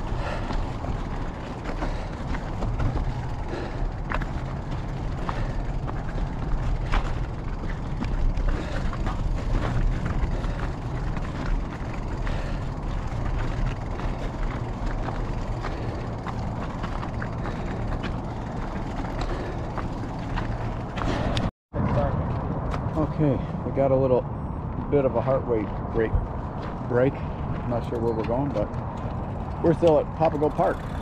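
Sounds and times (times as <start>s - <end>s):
tyres rumbling over loose stones: 0.0s - 21.5s
bike clicks and rattles: 0.0s - 23.0s, 26.5s - 31.0s.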